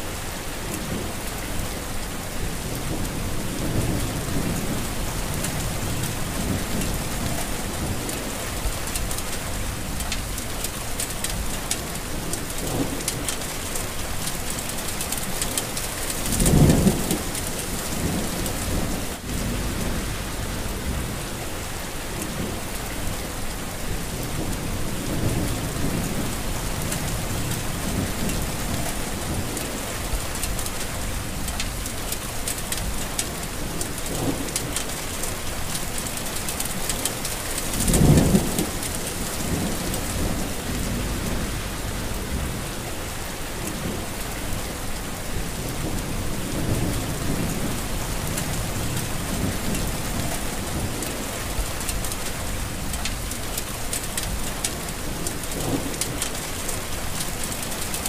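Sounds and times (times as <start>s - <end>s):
heavy rain falling: 0.0s - 58.0s
low rumbles: 18.0s - 21.8s, 37.9s - 44.4s.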